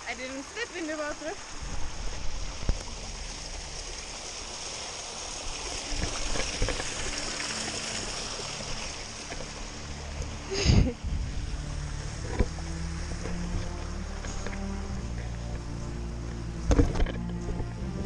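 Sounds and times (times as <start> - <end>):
stream rushing over rocks: 0.0 - 18.0.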